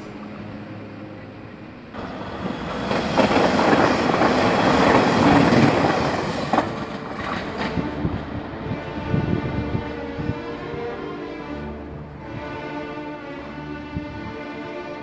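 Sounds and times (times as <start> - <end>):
train wheels rumbling on rails: 1.9 - 10.3.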